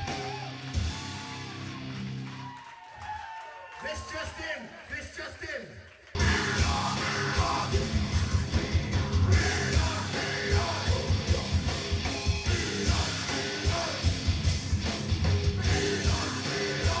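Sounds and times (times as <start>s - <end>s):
heavy rock band playing: 0.0s - 2.3s, 6.2s - 17.0s
rapid bass drum beats: 6.2s - 17.0s.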